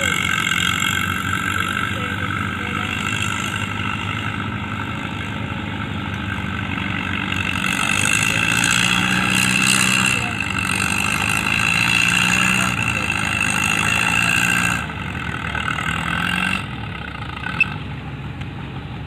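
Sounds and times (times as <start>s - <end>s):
faint voices: 0.0s - 4.0s, 7.6s - 14.6s
tractor engine running: 0.0s - 19.0s.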